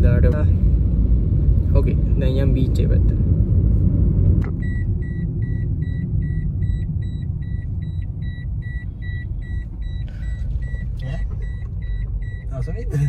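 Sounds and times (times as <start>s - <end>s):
car running and road rumble: 0.0s - 13.0s
high warning beeps: 4.6s - 12.8s.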